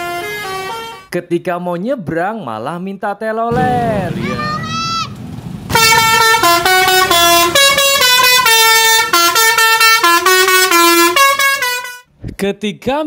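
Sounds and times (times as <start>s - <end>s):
musical air horn melody: 0.0s - 1.1s, 5.7s - 12.1s.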